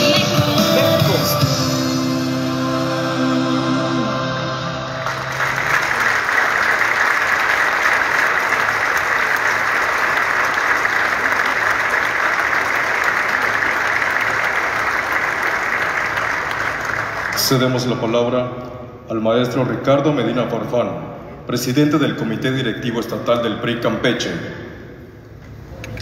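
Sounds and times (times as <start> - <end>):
music track: 0.0 - 6.1
audience applauding: 5.0 - 17.7.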